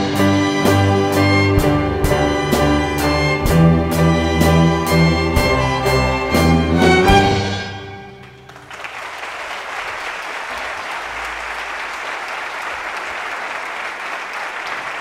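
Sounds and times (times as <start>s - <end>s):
string orchestra chord: 0.0s - 8.3s
audience applause: 7.8s - 15.0s.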